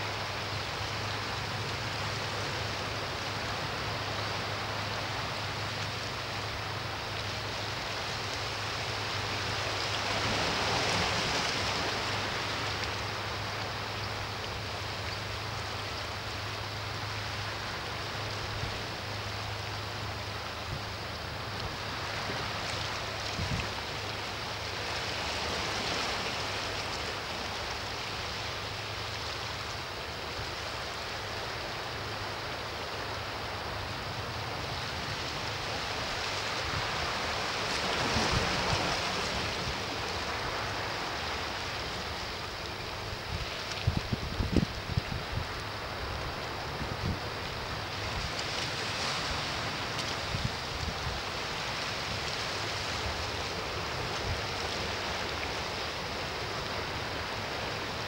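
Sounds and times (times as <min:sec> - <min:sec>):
waves washing against rocks: 0:34.2 - 0:58.0.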